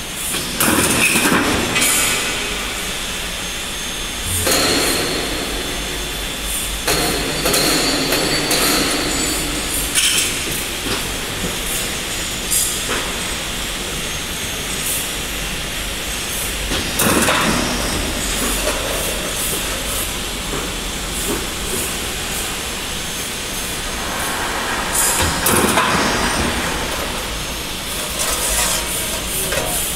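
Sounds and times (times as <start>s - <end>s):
machine droning: 1.7s - 16.8s, 17.6s - 29.6s
steel sheet scraping through rollers: 22.4s - 29.8s.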